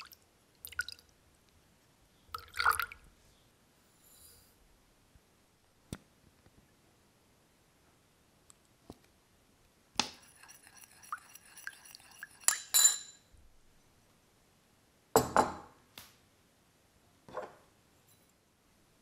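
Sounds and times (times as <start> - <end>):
metal spoon clinking ceramic bowl: 10.2 - 13.3
bowl knocking on wooden table: 15.2 - 15.7.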